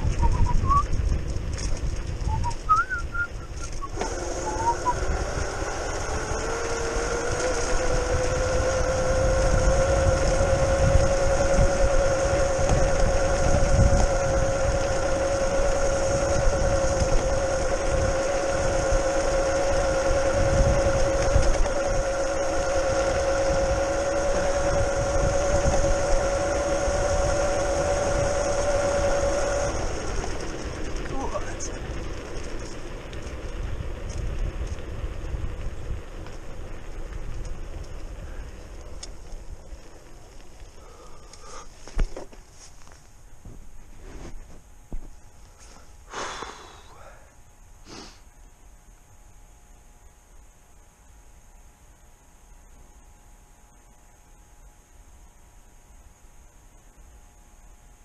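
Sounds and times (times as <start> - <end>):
wind rumble on microphone: 0.0 - 42.2
electric motor whining: 0.0 - 43.0.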